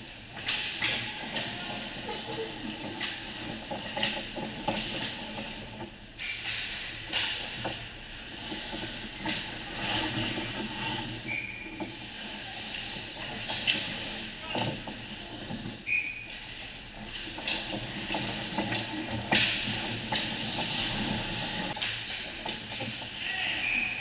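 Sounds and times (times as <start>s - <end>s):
hockey sticks and puck clacking: 0.3s - 24.0s
skate blades scraping on ice: 15.0s - 21.8s.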